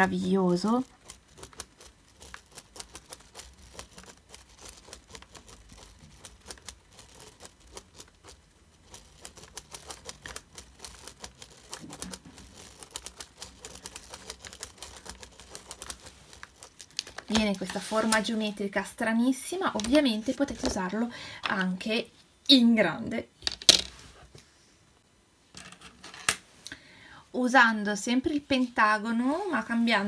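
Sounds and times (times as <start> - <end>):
plastic gear teeth clicking: 0.9 - 17.3.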